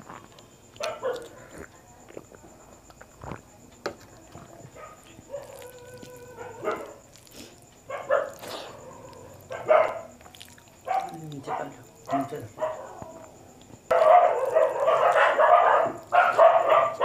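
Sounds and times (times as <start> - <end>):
dog barking: 0.8 - 1.5, 4.7 - 7.0, 7.9 - 10.1, 10.8 - 13.3, 13.9 - 17.0
dog whining: 5.3 - 7.0.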